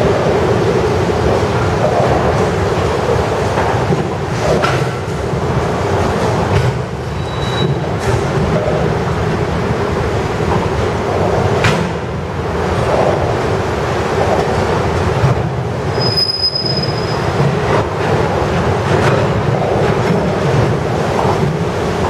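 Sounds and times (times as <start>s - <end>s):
freight train wheels rumbling on rails: 0.0s - 22.0s
high wheel squeal: 7.1s - 7.8s, 15.9s - 17.4s.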